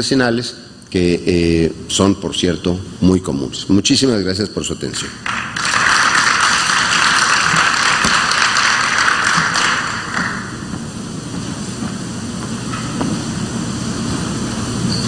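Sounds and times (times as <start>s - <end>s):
audience applauding: 5.2s - 10.7s.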